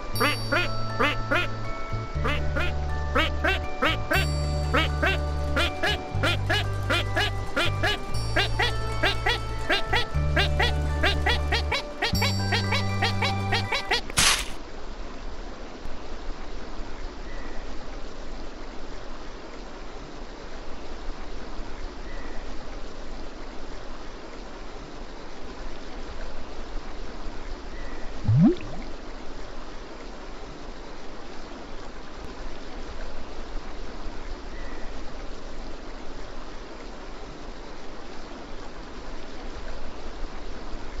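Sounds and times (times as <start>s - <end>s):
short sound rising in pitch: 28.3s - 28.9s.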